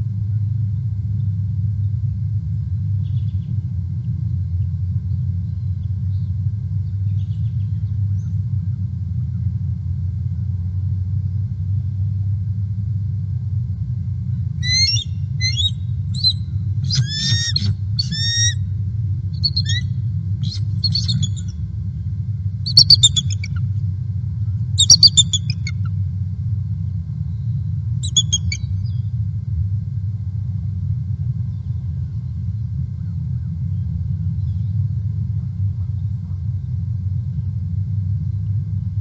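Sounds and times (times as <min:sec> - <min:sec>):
steady low rumble: 0:00.0 - 0:39.0
eagles chittering chirps: 0:14.6 - 0:18.6, 0:19.4 - 0:21.6, 0:22.7 - 0:23.7, 0:24.8 - 0:25.9, 0:28.0 - 0:29.0.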